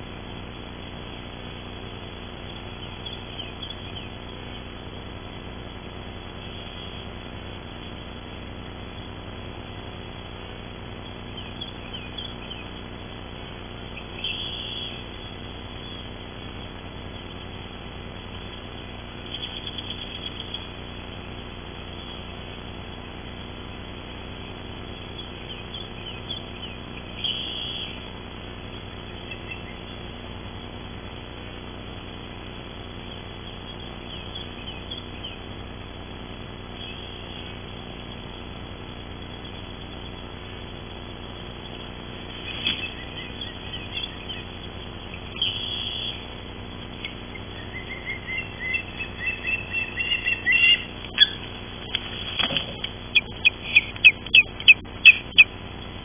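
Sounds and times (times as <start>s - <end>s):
ospreys calling: 13.9s - 16.2s, 19.2s - 20.8s, 24.9s - 28.1s, 29.1s - 30.0s, 41.5s - 56.0s.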